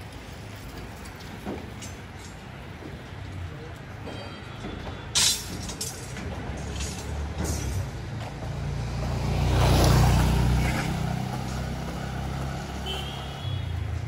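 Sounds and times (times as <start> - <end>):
street background noise: 0.0 - 14.0
vehicle engine passing: 6.6 - 12.8.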